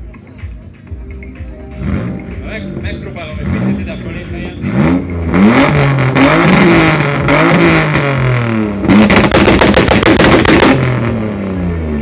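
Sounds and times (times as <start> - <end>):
car engine revving hard: 1.8 - 2.4, 3.3 - 12.0
rapid exhaust bangs: 1.8 - 12.0.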